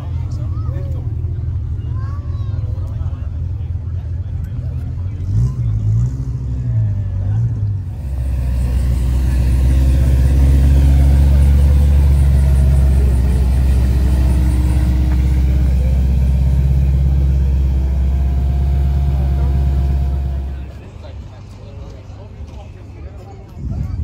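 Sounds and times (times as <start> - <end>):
car engine idling: 6.8 - 21.3.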